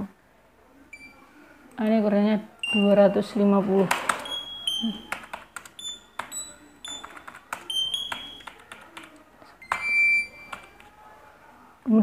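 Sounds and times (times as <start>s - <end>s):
keyboard keys clicking: 3.8s - 11.0s.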